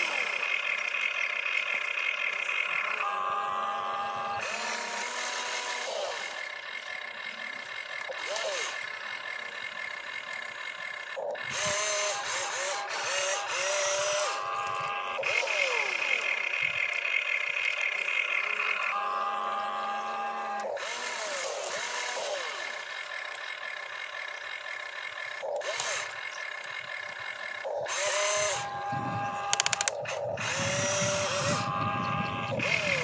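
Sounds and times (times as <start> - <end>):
small electric motors whining: 0.0 - 33.0
sharp clicks: 29.4 - 30.6.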